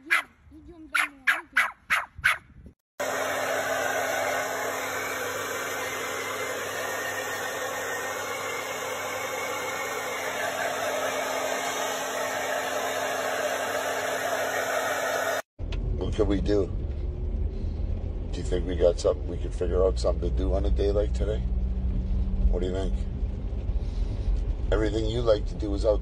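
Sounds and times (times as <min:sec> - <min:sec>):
hair dryer running: 0:03.0 - 0:15.5.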